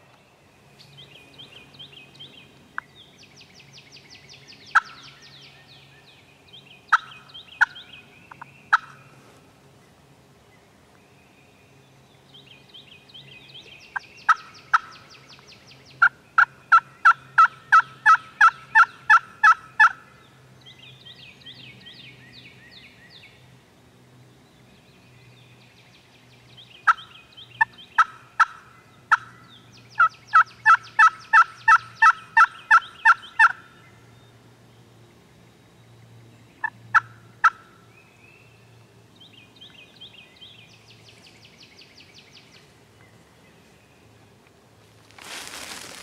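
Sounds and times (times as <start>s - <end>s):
turkey yelping: 16.0s - 20.0s, 28.0s - 29.3s, 30.0s - 33.6s.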